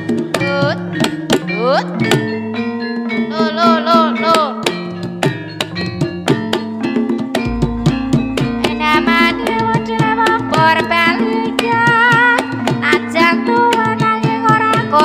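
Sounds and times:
ringing metallophone tones: 0.8 - 13.4
hand drum strokes: 5.1 - 15.0
deep heavy bass: 7.5 - 11.4
person singing: 8.4 - 15.0.

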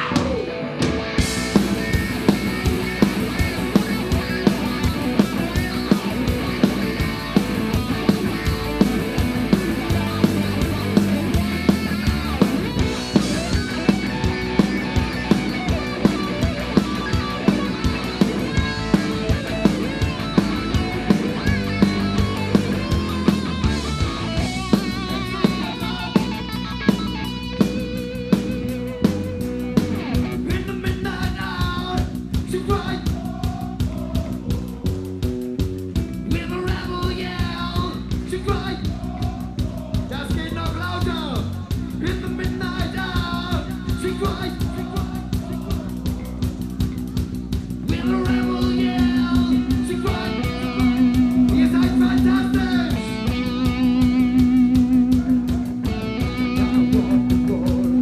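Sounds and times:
live rock band: 0.0 - 58.0
person singing: 47.9 - 58.0.

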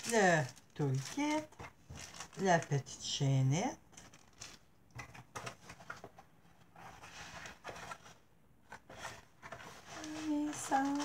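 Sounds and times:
plastic bag rustling: 0.0 - 3.2, 3.8 - 6.1, 8.9 - 11.0.

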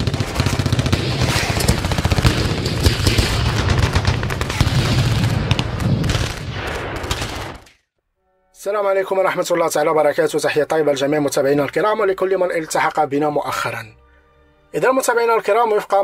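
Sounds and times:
rapid sharp cracks: 0.0 - 7.8.

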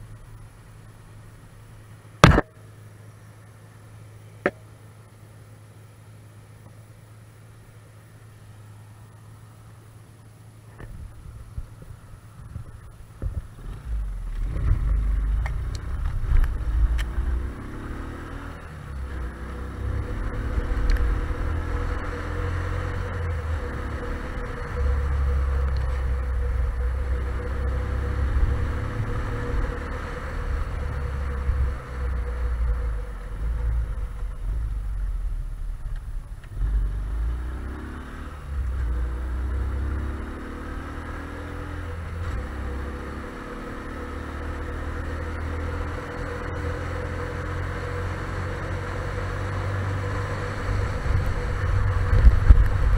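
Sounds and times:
wind rumble on microphone: 10.8 - 17.4, 19.8 - 37.0, 49.7 - 52.9
motorcycle engine accelerating: 10.8 - 52.9.

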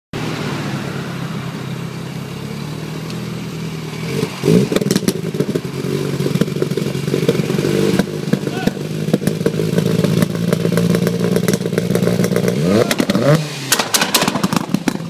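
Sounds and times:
car engine idling and revving: 0.2 - 15.0
exhaust pops and bangs: 4.6 - 15.0.

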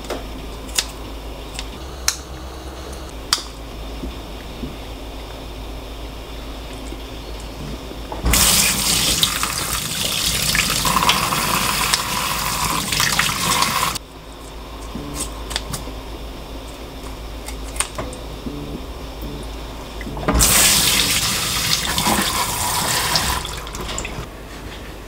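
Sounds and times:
tap water running: 8.2 - 14.0, 20.0 - 24.3.

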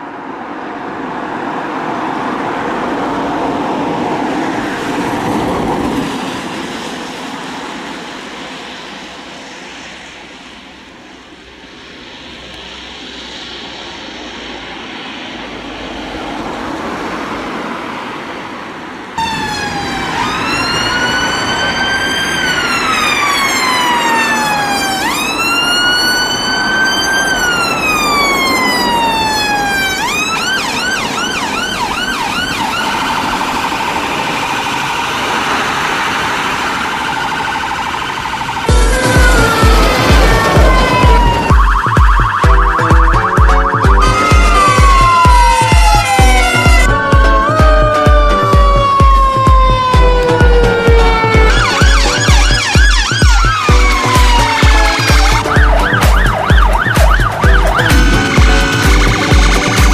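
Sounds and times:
vehicle engine and tyre noise: 0.0 - 59.9
ambulance siren wailing and yelping: 19.2 - 59.9.

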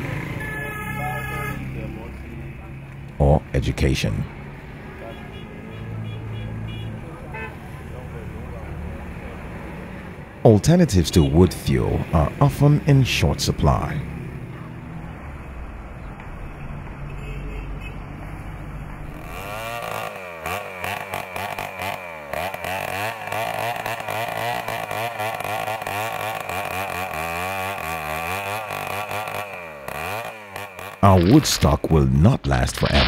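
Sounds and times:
chainsaw cutting wood: 19.1 - 31.6.

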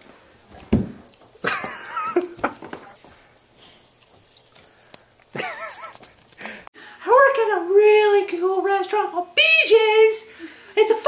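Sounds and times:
dull thump: 0.6 - 1.0.

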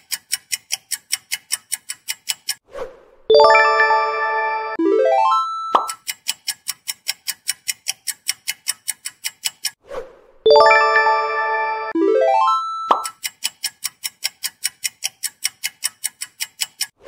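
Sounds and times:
bright chime: 3.3 - 5.9, 10.5 - 13.0
countdown timer ticking: 3.3 - 6.2, 10.5 - 13.4.

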